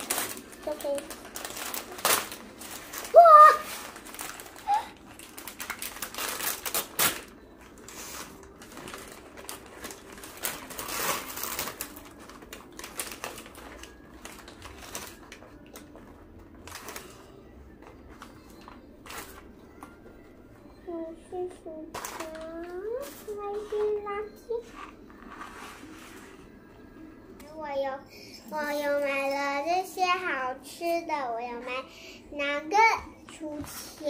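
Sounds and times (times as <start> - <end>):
paper bag rustling: 0.0 - 19.8.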